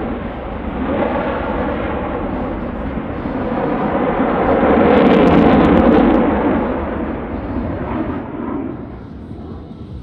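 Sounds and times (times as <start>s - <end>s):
jet passing with crackle: 0.0s - 10.0s.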